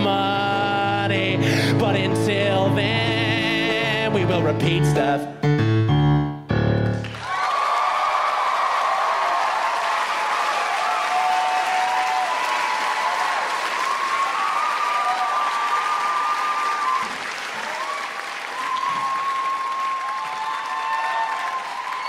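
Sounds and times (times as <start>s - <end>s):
audience clapping: 6.8s - 22.0s
audience cheering and screaming: 7.0s - 22.0s.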